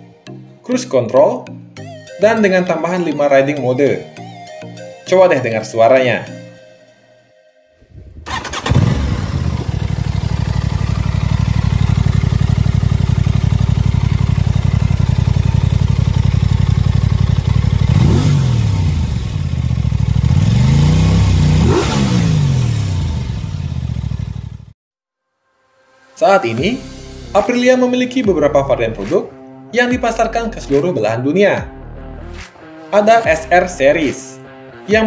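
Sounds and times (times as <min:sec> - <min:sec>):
engine revving: 0:07.9 - 0:24.7
motorcycle engine starting and idling: 0:07.9 - 0:24.7.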